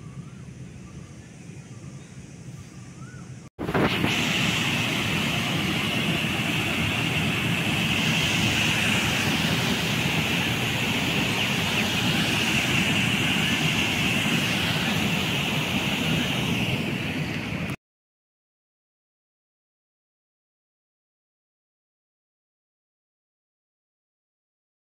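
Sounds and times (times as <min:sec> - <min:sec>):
water rushing through channel: 0:03.6 - 0:17.8.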